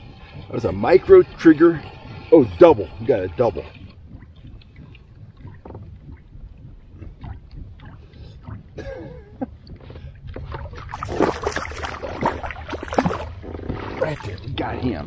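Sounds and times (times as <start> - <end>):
low wind rumble: 0.0 - 15.0
fish splashing at water surface: 9.8 - 14.4.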